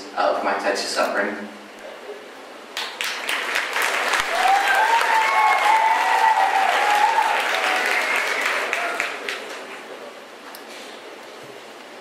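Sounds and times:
audience applauding: 0:02.8 - 0:10.0
cheering whoop: 0:04.1 - 0:09.2.

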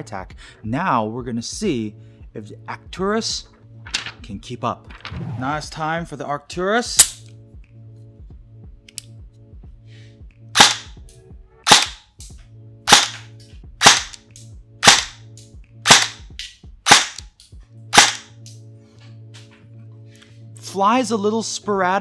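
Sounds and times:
airsoft gun single shots: 0:10.6 - 0:10.9, 0:11.7 - 0:12.0, 0:12.9 - 0:14.2, 0:14.8 - 0:15.2, 0:15.9 - 0:16.2, 0:16.9 - 0:17.2, 0:17.9 - 0:18.3.

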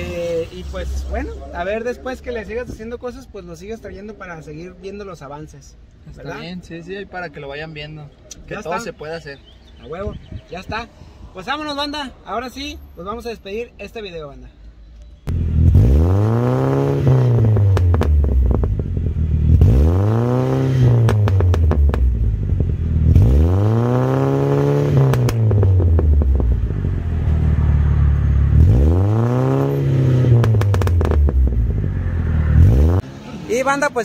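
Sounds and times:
exhaust crackles: 0:15.2 - 0:33.9
car engine revving: 0:15.3 - 0:34.0.

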